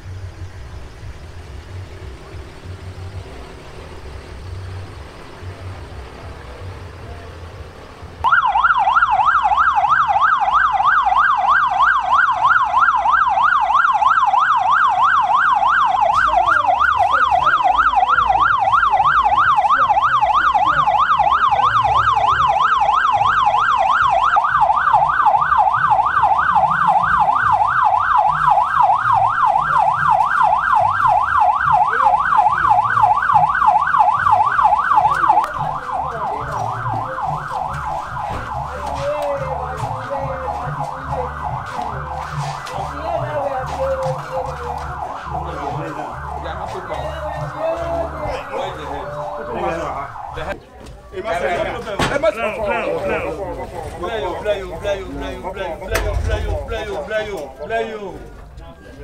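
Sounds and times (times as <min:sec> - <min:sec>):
electronic siren yelping: 0:08.2 - 0:50.6.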